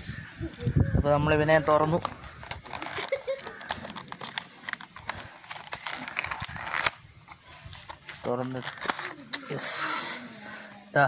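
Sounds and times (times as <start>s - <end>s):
packaging rustling and crinkling: 1.8s - 9.5s
small plastic clicks: 2.0s - 7.0s.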